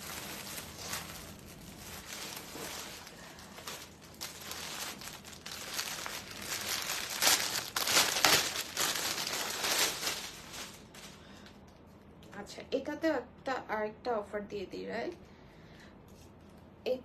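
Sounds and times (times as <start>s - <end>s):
plastic packet crinkling: 0.0s - 11.4s.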